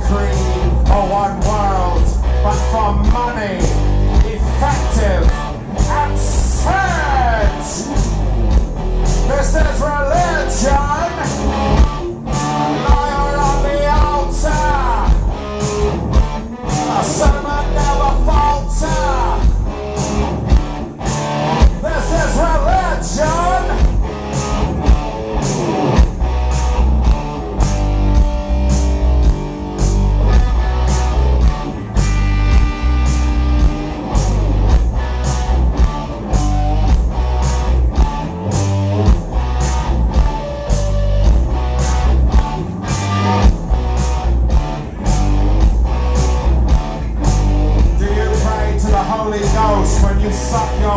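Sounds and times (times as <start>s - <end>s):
man singing: 0.0s - 8.0s, 9.3s - 11.5s, 12.6s - 15.2s, 16.7s - 19.6s, 21.8s - 23.9s, 47.8s - 50.9s
live rock band playing: 0.0s - 50.9s.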